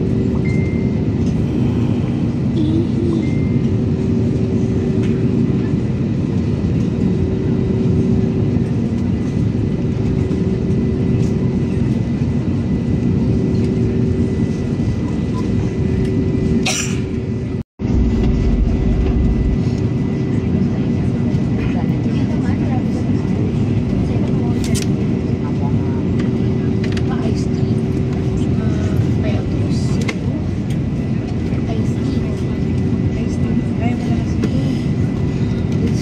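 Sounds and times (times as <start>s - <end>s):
airliner engines humming: 0.0s - 36.0s
deep rumble: 17.3s - 24.2s.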